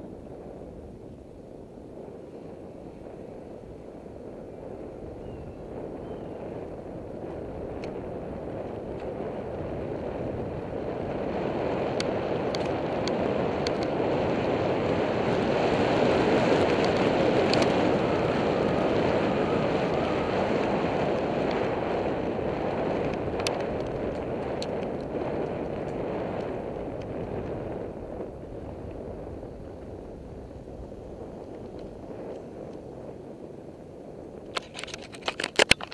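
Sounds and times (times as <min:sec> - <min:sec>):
wind buffeting microphone: 0:00.0 - 0:35.9
faint ticks and rattles: 0:34.4 - 0:35.9.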